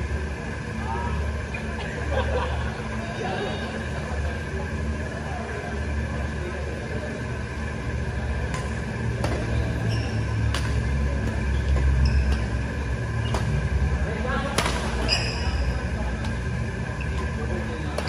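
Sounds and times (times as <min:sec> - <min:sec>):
steady low hum: 0:00.0 - 0:18.0
court shoes squeaking: 0:08.3 - 0:18.0
racket hitting shuttlecock: 0:08.5 - 0:09.6, 0:10.4 - 0:13.8, 0:14.5 - 0:15.1.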